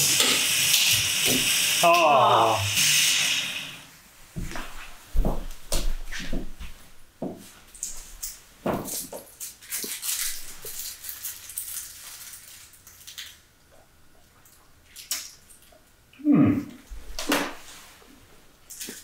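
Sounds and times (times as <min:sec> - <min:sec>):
footsteps on wooden floor: 0:04.3 - 0:07.5, 0:08.6 - 0:09.2.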